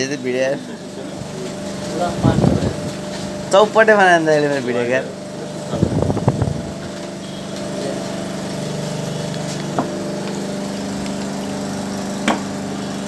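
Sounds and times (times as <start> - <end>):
small engine running: 0.0 - 13.0
sharp knocks: 12.2 - 12.5.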